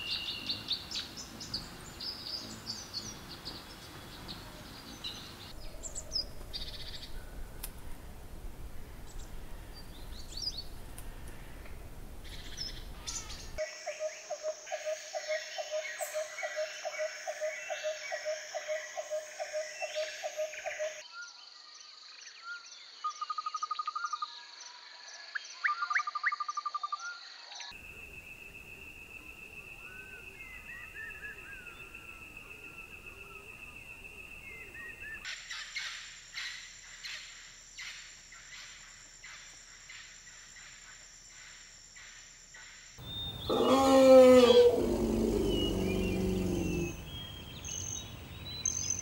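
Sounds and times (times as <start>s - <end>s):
insects droning: 0.0s - 22.9s, 27.2s - 49.0s
birds chirping and calling: 9.0s - 13.6s, 43.0s - 49.0s
high insect whine: 43.0s - 48.8s.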